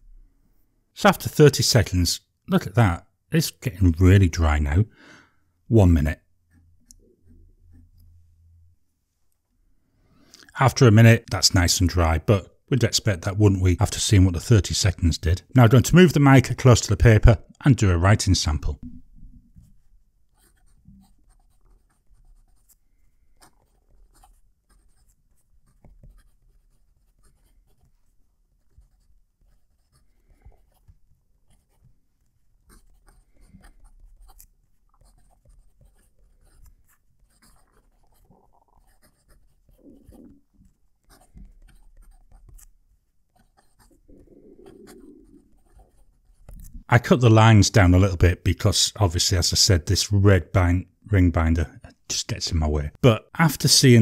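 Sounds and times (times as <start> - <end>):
fountain pen nib scratching paper: 19.5 - 46.8.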